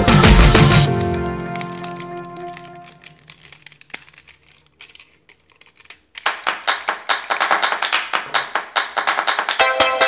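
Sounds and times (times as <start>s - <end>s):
plastic toy parts rattling: 0.9s - 8.7s
fast sharp taps: 5.8s - 9.8s.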